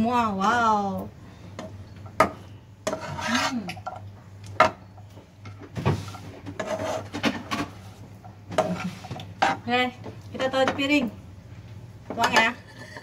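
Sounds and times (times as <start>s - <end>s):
metal spatula scraping a wok: 2.8s - 4.0s, 6.0s - 7.9s, 12.2s - 13.0s.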